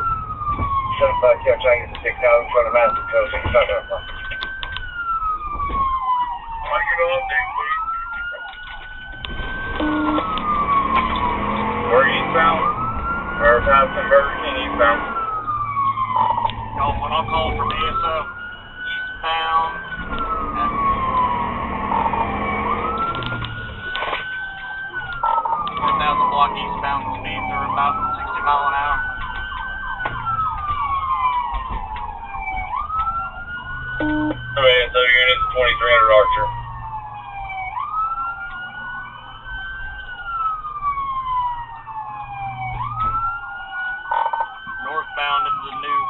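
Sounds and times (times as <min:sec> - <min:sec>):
engine and road noise: 0:00.0 - 0:46.0
police siren wailing: 0:00.0 - 0:46.0
blaring tone: 0:09.7 - 0:10.5, 0:34.0 - 0:35.0.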